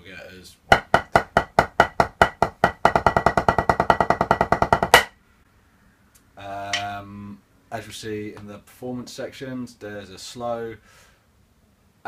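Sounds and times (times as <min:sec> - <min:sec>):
drumsticks on practice pad: 0:00.7 - 0:05.1.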